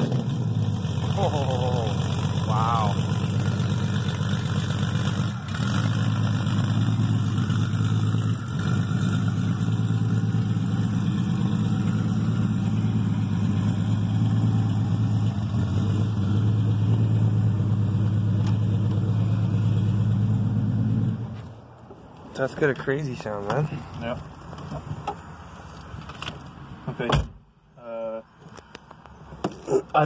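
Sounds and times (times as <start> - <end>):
car engine idling at exhaust: 0.1 - 20.6.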